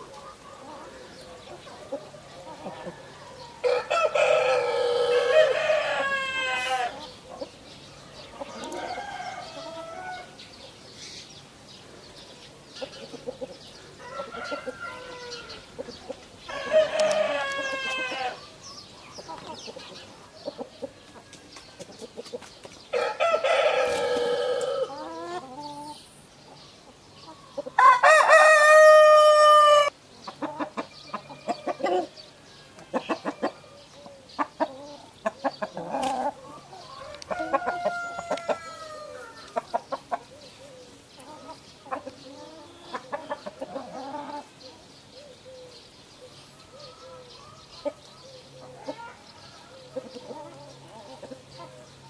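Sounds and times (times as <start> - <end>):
chicken clucking: 0.0 - 7.6, 8.2 - 10.3, 12.8 - 32.2, 32.8 - 44.9, 46.3 - 52.0
rooster crowing: 2.8 - 7.0, 8.6 - 10.4, 14.0 - 15.7, 16.5 - 18.4, 22.9 - 25.0, 27.8 - 29.9, 36.9 - 39.6.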